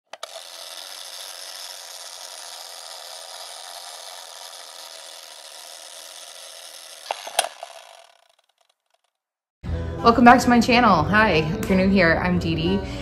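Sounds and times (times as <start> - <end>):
film projector whirring: 0.0 - 9.1
sharp clicks: 0.1 - 9.1.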